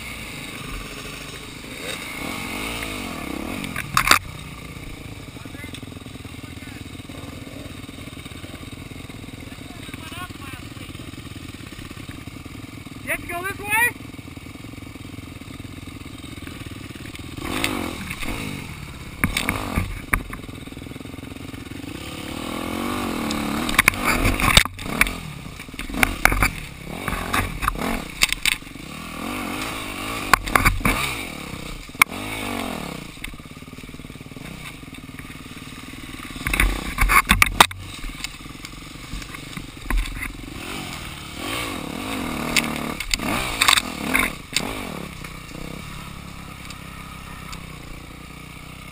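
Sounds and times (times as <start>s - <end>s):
dirt bike engine revving: 0.0s - 48.9s
sharp knocks and clatter: 19.2s - 20.5s, 23.2s - 28.7s, 29.6s - 31.2s, 36.2s - 40.4s.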